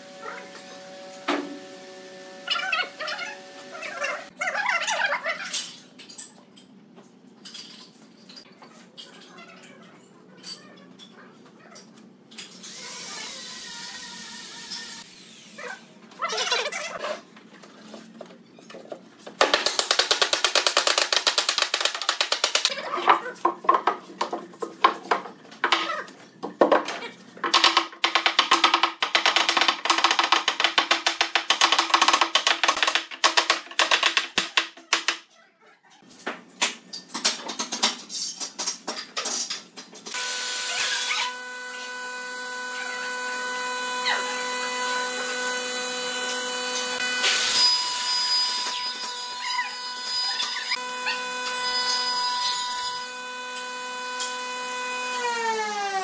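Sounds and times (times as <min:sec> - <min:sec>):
sander whirring: 0:40.2 - 0:47.3.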